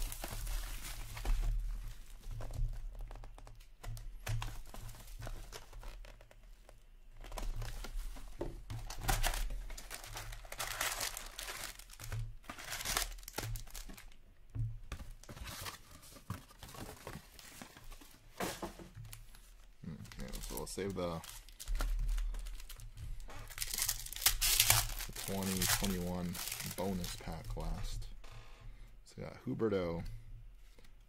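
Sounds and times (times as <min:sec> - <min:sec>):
foil packs rustling: 0:00.0 - 0:03.6, 0:04.2 - 0:14.2, 0:15.0 - 0:28.0
plastic wrapper crinkling: 0:00.0 - 0:14.2, 0:19.0 - 0:28.0.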